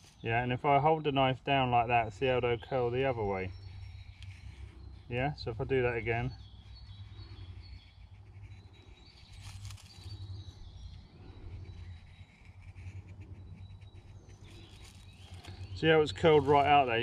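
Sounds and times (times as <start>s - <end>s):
birds calling: 0.0s - 17.0s
knife scraping wooden stick: 6.6s - 10.6s, 11.4s - 17.0s.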